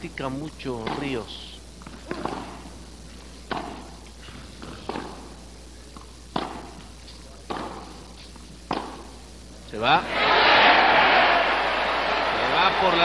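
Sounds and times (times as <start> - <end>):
tennis ball bouncing: 0.8 - 1.1, 1.8 - 2.6, 3.5 - 5.3, 6.0 - 6.8, 7.5 - 7.9, 8.7 - 9.1
tennis racket hitting ball: 3.5 - 3.9, 4.8 - 5.2, 6.3 - 6.8, 7.5 - 7.8, 8.7 - 9.0.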